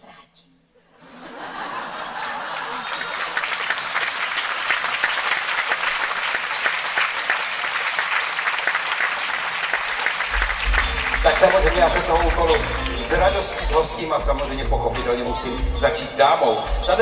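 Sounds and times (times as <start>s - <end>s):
audience applauding: 1.7s - 15.5s.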